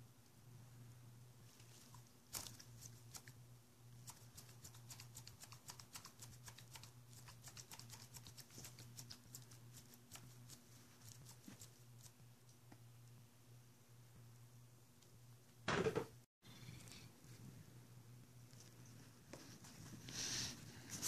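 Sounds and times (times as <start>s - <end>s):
low electrical hum: 0.0s - 21.0s
gloved hands clicking and crinkling: 4.0s - 12.7s.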